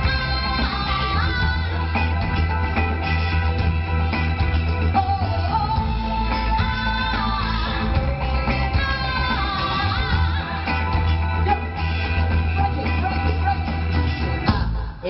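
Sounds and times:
bass guitar: 0.0 - 15.0
drums: 0.0 - 15.0
electric guitar: 0.0 - 15.0
keyboards: 0.0 - 15.0
person singing: 4.8 - 15.0.

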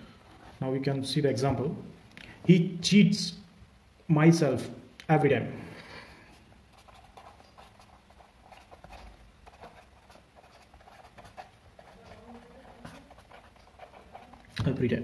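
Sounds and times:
pen writing on paper: 6.7 - 14.6.

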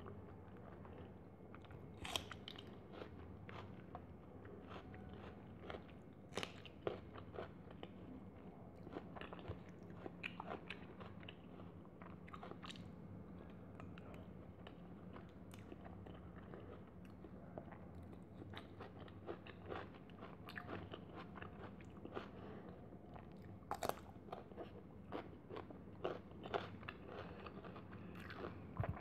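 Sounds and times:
person chewing: 0.5 - 3.9, 8.8 - 12.9, 13.8 - 29.0.

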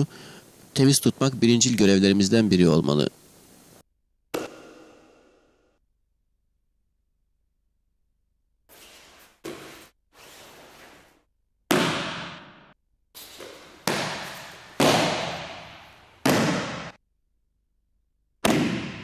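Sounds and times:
bodies slapping a training mat: 11.7 - 12.6, 13.3 - 17.0, 18.4 - 19.0.

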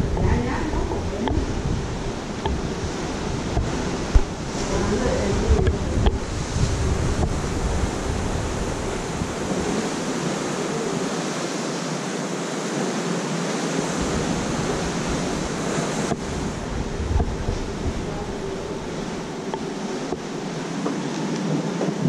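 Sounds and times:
sea water rushing along ship: 0.0 - 22.0
wind rumbling on microphone: 0.0 - 22.0.

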